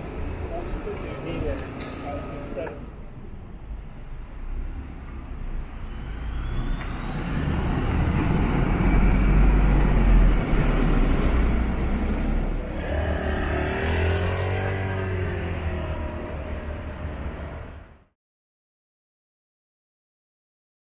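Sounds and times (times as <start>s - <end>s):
vehicle passing close by: 5.9s - 17.7s.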